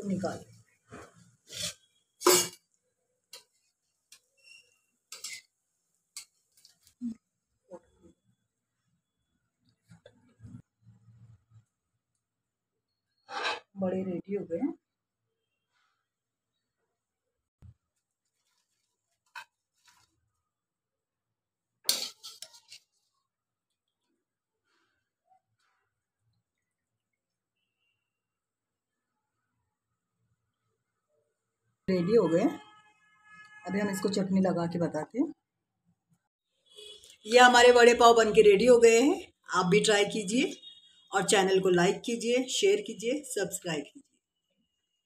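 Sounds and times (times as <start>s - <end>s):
metal utensils clinking: 2.2s - 2.6s, 5.1s - 5.5s, 21.9s - 22.8s.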